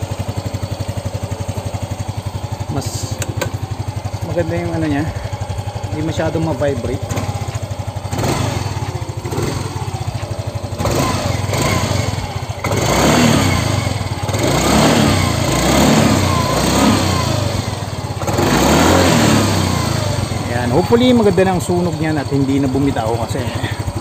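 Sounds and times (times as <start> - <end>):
scooter engine revving: 0.0 - 24.0.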